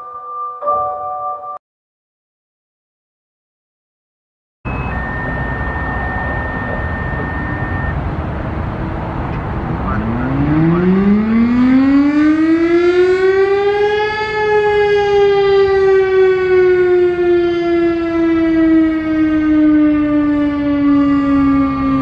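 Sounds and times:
warning siren wailing: 4.7 - 22.0.

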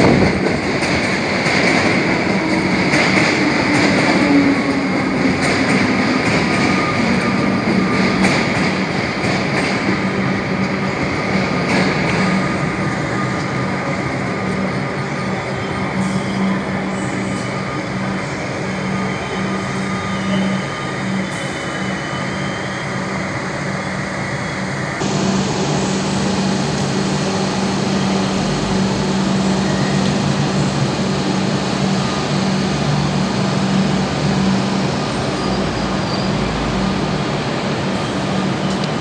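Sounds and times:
electric train humming: 0.0 - 39.0
station noise: 25.0 - 39.0.

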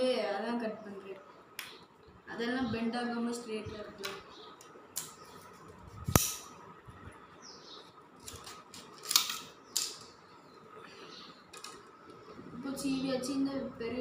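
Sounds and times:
knife cracking through stalks: 6.1 - 6.5.

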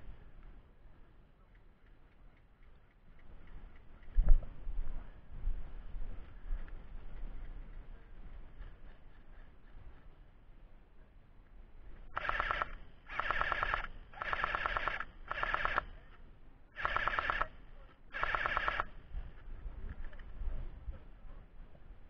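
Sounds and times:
airsoft rifle full-auto bursts: 12.2 - 15.9, 16.8 - 19.0.

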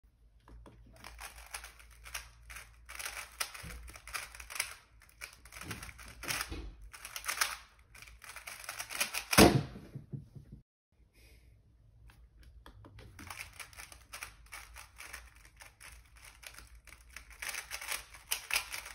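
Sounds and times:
puzzle cube clicking: 1.0 - 9.4, 12.5 - 18.9.

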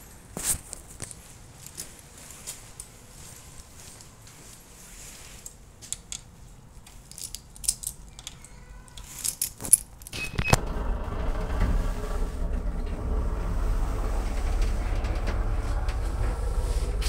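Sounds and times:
keys jangling: 6.9 - 10.2.

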